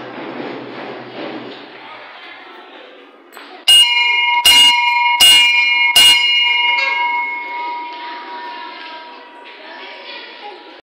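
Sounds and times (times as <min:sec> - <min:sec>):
bell ringing: 0:03.7 - 0:09.8.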